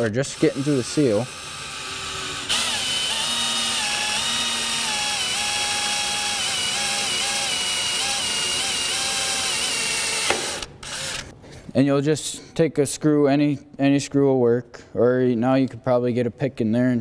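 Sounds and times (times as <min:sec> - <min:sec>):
cordless drill whining: 0:00.0 - 0:11.3.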